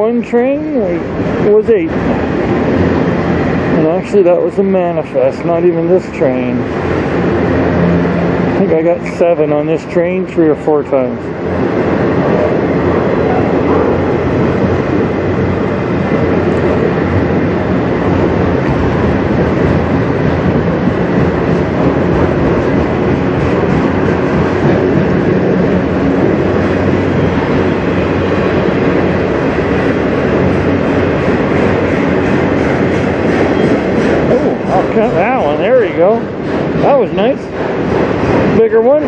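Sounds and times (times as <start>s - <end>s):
freight train wheels rumbling: 0.0s - 39.0s.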